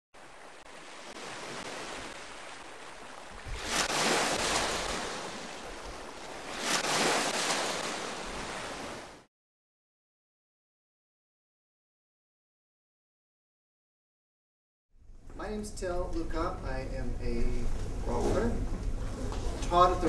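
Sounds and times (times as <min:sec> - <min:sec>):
ocean waves breaking: 0:00.2 - 0:09.3.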